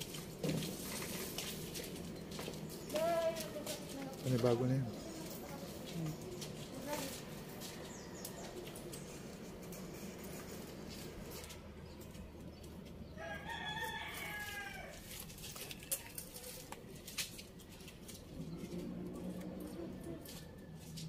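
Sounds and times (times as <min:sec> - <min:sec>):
rooster crowing: 0:13.2 - 0:15.1.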